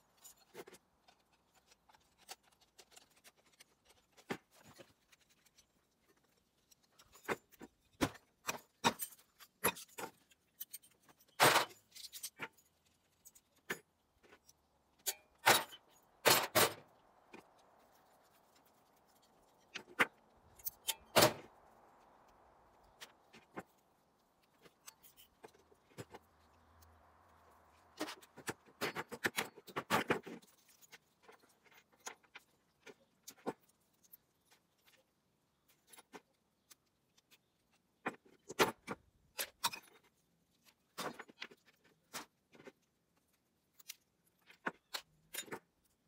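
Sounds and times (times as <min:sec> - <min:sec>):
metal parts clicking and clinking: 0:00.1 - 0:21.5, 0:38.4 - 0:46.0.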